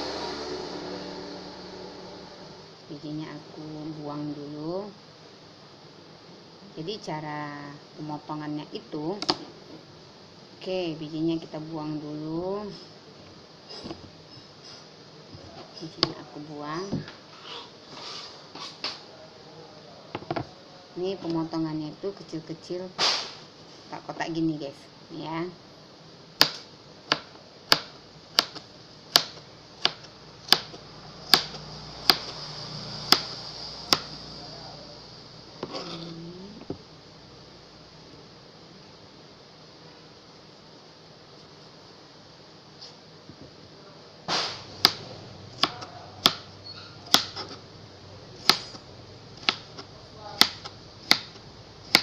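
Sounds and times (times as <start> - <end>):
knife chopping on cutting board: 26.4 - 32.4, 45.6 - 46.5, 47.1 - 47.6, 48.4 - 48.8, 49.4 - 52.0.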